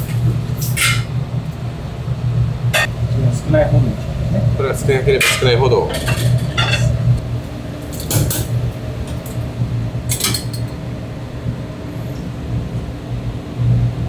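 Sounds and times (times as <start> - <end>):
steady low hum: 0.0 - 14.0
utensils and dishes clinking: 5.2 - 7.0, 10.1 - 10.8.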